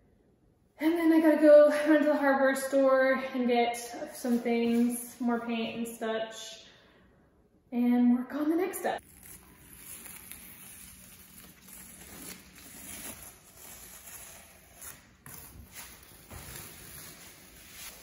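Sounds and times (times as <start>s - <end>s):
tape peeling off a wall: 9.0s - 18.0s.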